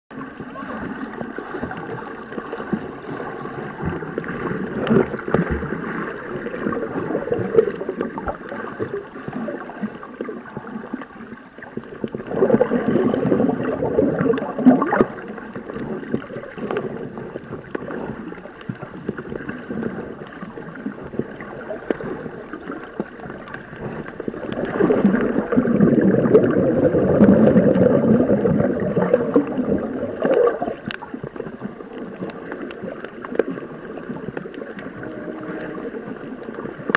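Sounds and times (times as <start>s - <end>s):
underwater gurgling: 0.1s - 36.9s.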